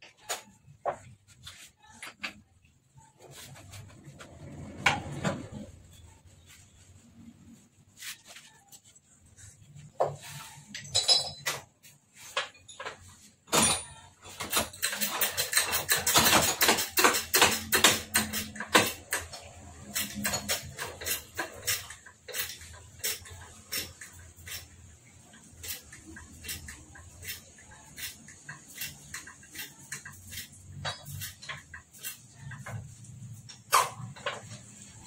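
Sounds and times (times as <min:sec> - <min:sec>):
metal clinks and knocks: 0:10.3 - 0:24.2.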